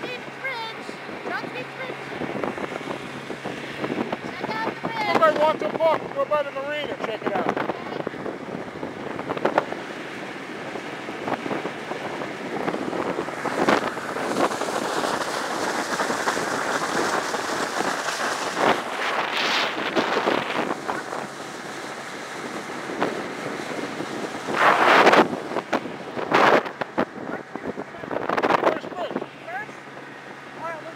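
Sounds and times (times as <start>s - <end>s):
wind buffeting microphone: 0.0s - 30.9s
water splashing off boat hull: 6.9s - 30.9s.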